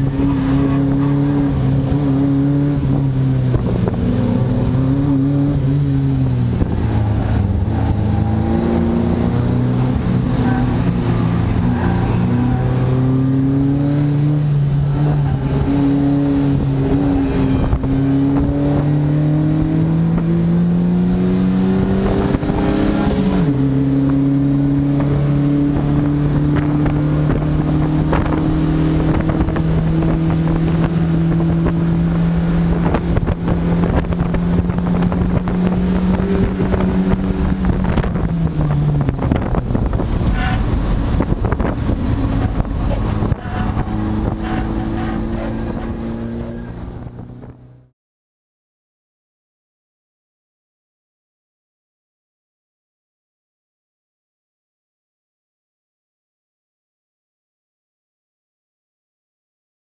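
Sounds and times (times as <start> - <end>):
race car engine revving: 0.0 - 47.9.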